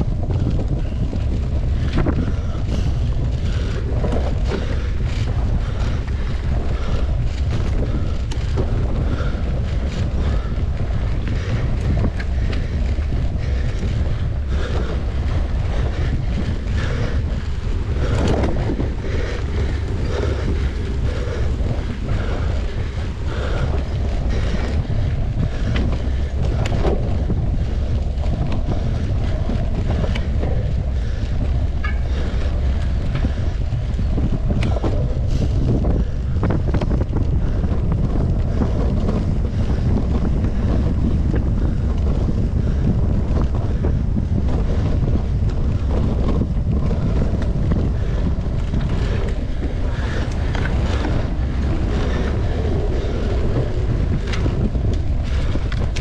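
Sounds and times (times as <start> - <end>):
bike rattling over rough ground: 0.0 - 56.0
wind buffeting microphone: 0.0 - 56.0.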